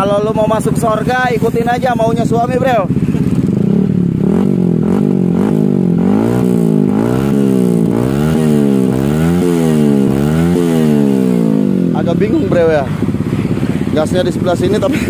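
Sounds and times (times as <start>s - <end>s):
motorcycle engine revving: 0.0s - 15.0s.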